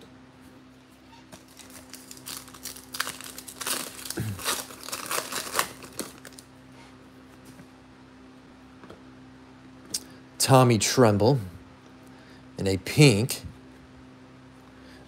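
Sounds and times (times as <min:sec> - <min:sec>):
foil pack crinkling and tearing: 0:01.4 - 0:06.5.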